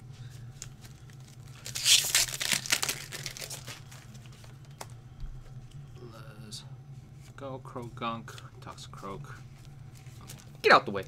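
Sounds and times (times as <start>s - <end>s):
foil wrapper crinkling and tearing: 0.6s - 4.3s.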